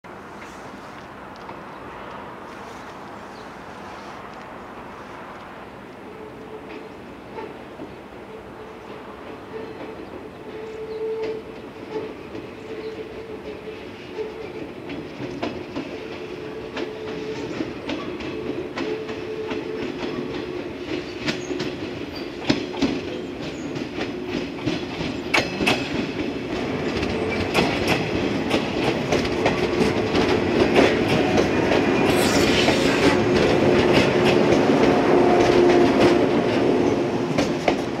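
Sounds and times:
wheels clicking over rail joints: 8.8s - 32.1s
electric train passing: 25.5s - 38.0s
brief hiss: 32.0s - 33.4s.

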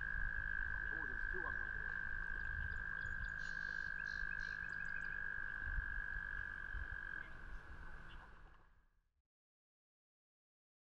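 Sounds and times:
frogs trilling: 0.0s - 8.6s.

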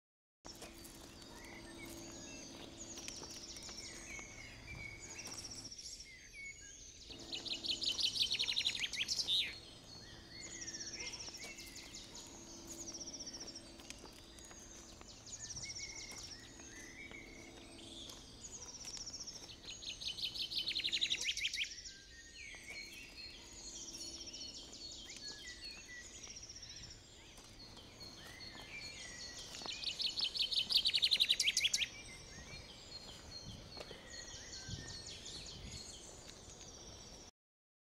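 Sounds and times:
low steady hum: 0.5s - 6.0s, 6.8s - 21.5s
small birds chirping and trilling: 0.5s - 37.3s.

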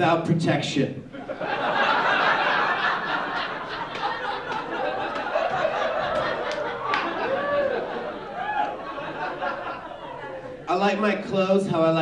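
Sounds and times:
audience laughing: 1.1s - 10.7s.

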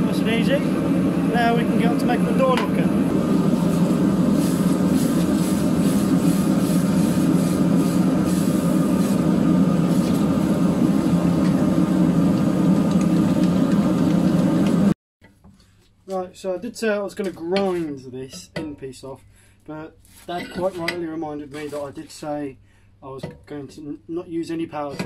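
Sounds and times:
gas forge burner rushing: 0.0s - 15.0s
hot iron quenched in water hissing: 1.8s - 14.8s.

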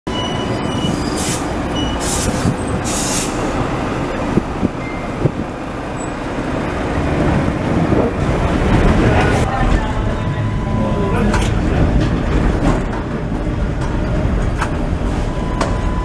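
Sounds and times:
tram motors and wheels rumbling: 0.1s - 16.0s
short bursts of hiss: 2.0s - 3.5s.

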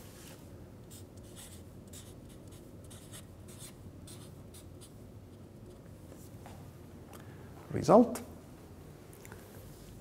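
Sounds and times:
marker scratching on paper: 0.9s - 5.0s.

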